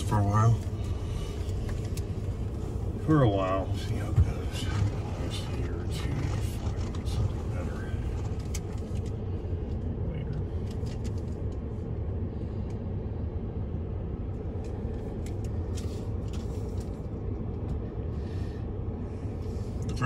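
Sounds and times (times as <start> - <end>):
truck engine idling: 0.0 - 11.2.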